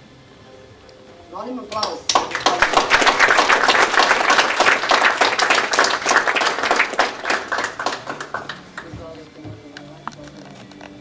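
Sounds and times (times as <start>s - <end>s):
audience applauding: 1.8s - 9.1s.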